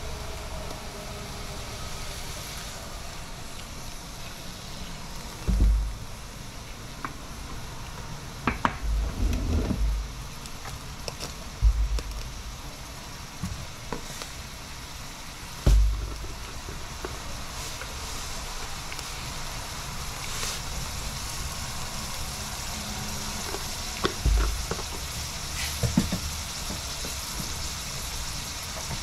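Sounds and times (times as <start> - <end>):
onion sizzling in oil: 0.0 - 29.0
dull low bumps: 5.4 - 6.2, 8.8 - 10.4, 11.5 - 12.7, 15.6 - 16.7, 24.2 - 25.2.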